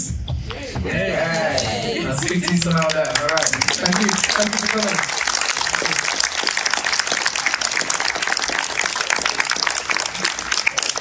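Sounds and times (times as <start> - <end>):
audience applauding: 1.3 - 11.0.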